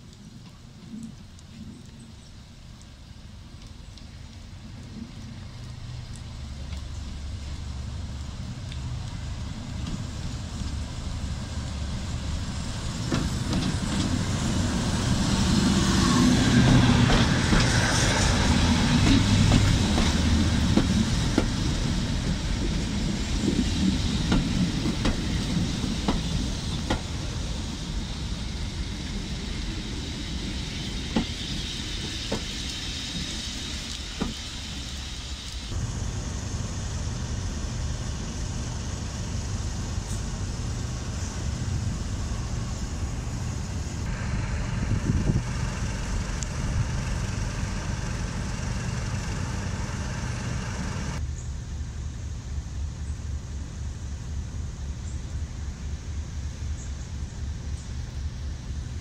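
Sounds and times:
diesel locomotive engine rumble: 0.0 - 59.0
train wheels clicking over rail joints: 12.8 - 35.0.

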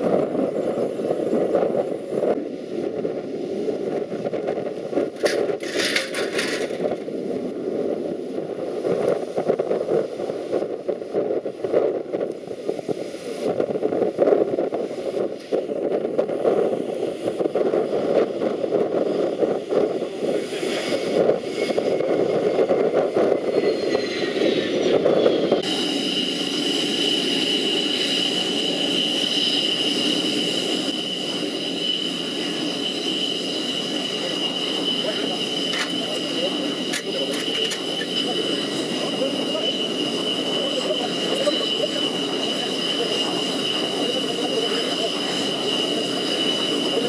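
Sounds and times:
jet engines rumbling with high whine: 0.0 - 47.0.

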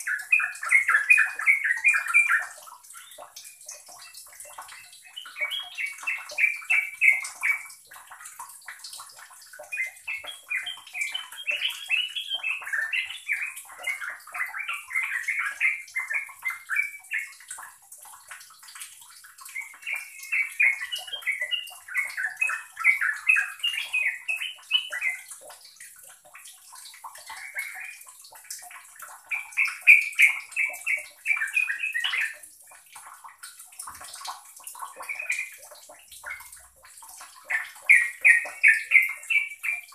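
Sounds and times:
bulbul singing: 0.0 - 7.8, 9.6 - 17.4, 19.4 - 25.3, 29.2 - 32.5, 34.8 - 36.5, 37.4 - 39.9.

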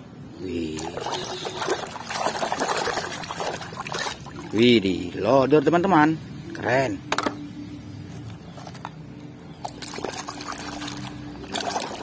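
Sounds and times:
water sloshing and splashing in tub: 0.5 - 4.9, 9.6 - 12.0.

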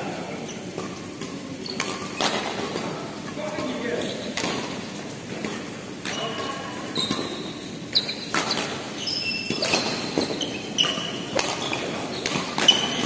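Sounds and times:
sneakers squeaking on court: 1.6 - 2.5, 6.1 - 13.0
racket striking shuttlecock: 9.5 - 11.6, 12.2 - 13.0.

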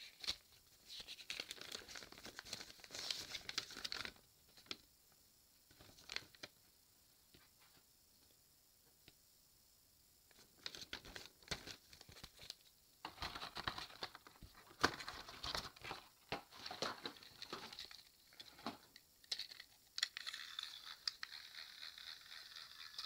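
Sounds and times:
plastic toy packaging crinkling: 1.0 - 4.2, 10.6 - 23.0
toy train motor whirring: 19.2 - 23.0.

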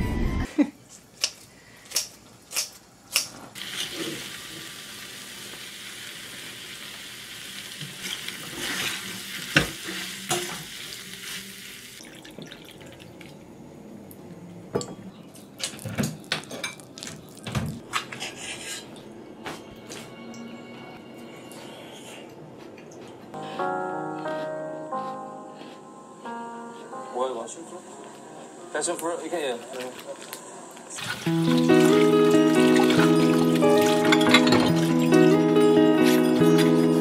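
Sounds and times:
rice sizzling in a pan: 3.6 - 12.0
spoon scraping a pan: 18.1 - 18.9.

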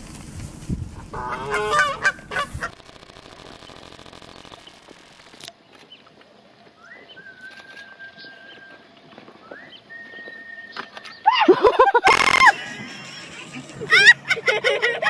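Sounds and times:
goose honking: 1.1 - 2.7
faint thin whistle-like tone: 6.8 - 11.1.

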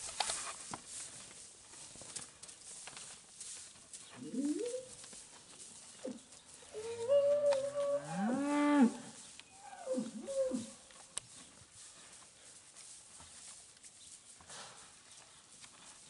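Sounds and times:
cattle mooing: 7.2 - 9.0.

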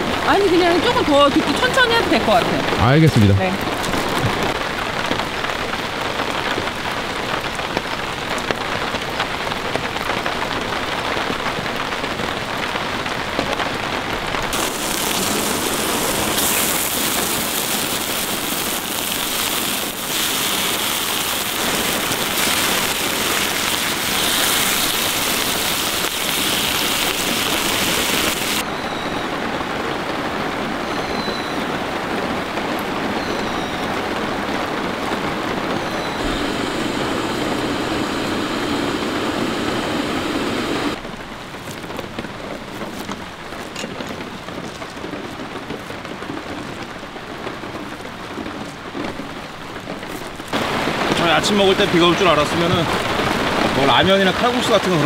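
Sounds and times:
rain falling on tarp: 0.0 - 55.0.

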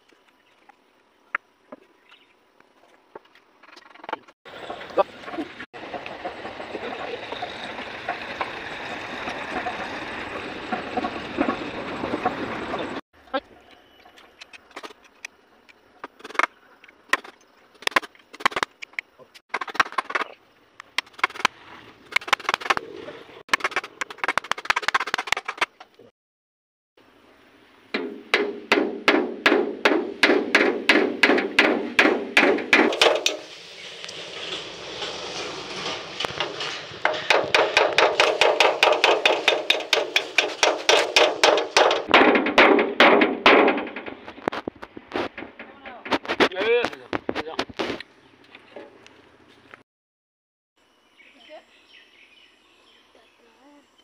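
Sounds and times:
hammer driving nails into wood: 28.0 - 33.4, 36.4 - 44.1.

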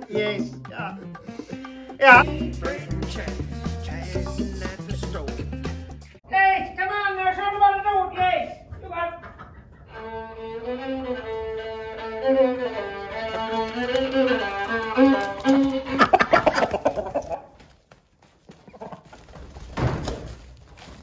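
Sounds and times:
fiddle playing lively tune: 9.9 - 17.3.

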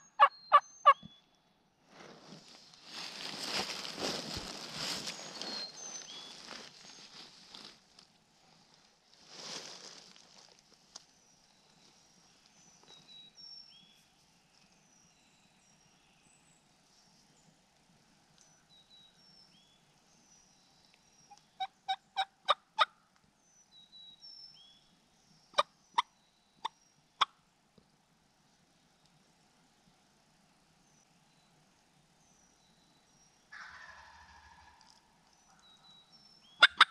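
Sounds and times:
turkey yelping: 0.0 - 1.0, 36.6 - 36.9
faint songbird chirps: 0.0 - 1.6, 2.3 - 7.7, 8.4 - 36.9
turkey clucks: 33.6 - 35.0, 36.6 - 36.9.

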